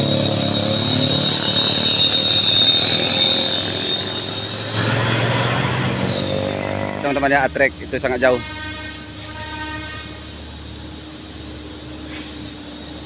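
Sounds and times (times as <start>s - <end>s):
vehicle engine approaching: 0.0s - 8.4s
truck diesel engine climbing: 0.0s - 13.0s.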